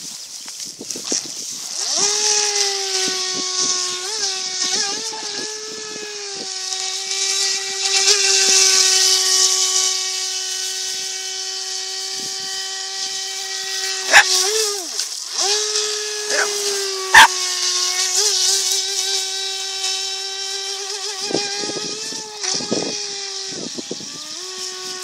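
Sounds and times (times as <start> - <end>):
electric motor whining: 10.0 - 25.0.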